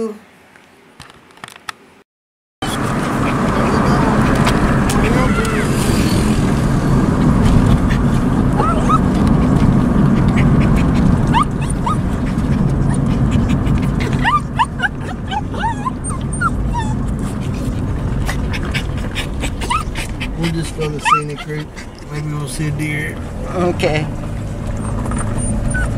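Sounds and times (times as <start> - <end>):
moving car rumble: 2.6 - 25.9
dog whining and yelping: 7.7 - 22.1, 24.5 - 25.9.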